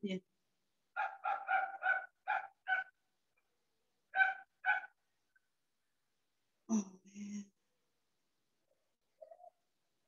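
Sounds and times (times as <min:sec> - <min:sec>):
dog barking: 0:01.0 - 0:03.0, 0:04.1 - 0:05.0.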